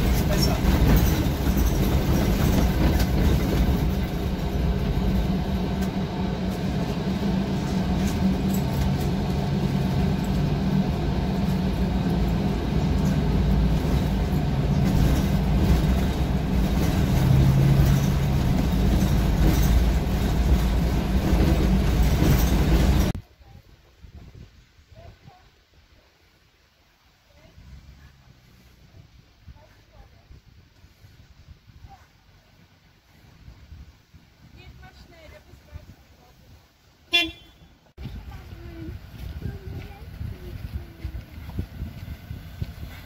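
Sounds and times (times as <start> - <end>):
bus engine and road rumble: 0.0 - 43.0.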